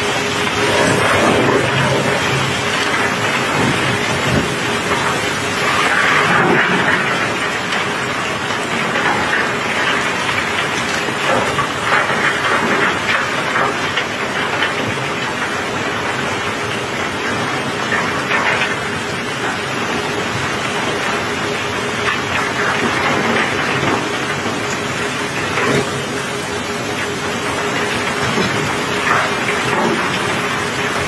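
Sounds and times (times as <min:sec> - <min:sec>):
rain on a steel deck: 0:00.0 - 0:31.0.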